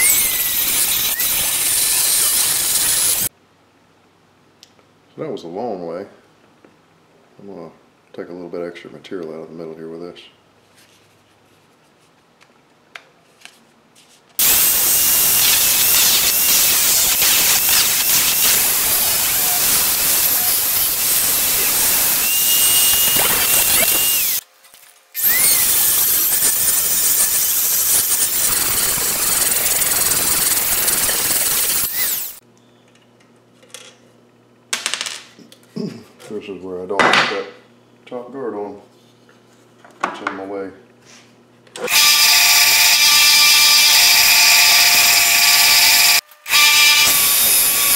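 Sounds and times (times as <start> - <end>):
angle grinder grinding steel: 0.0 - 3.3, 14.4 - 24.4, 25.2 - 32.4, 41.8 - 47.9.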